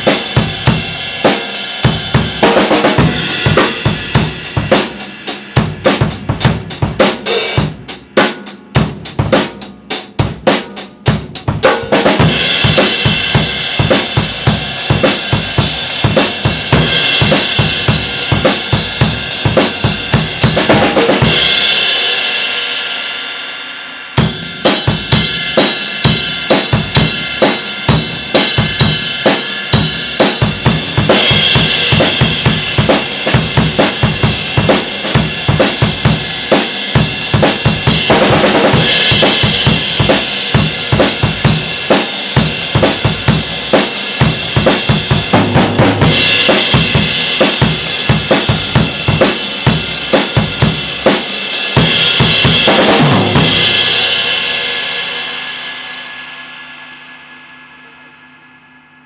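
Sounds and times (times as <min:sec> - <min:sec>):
cymbal crashes: 0:00.0 - 0:08.0, 0:11.7 - 0:59.0
drum kit groove: 0:00.0 - 0:56.9
cymbals ringing: 0:21.1 - 0:42.6, 0:53.3 - 0:59.0.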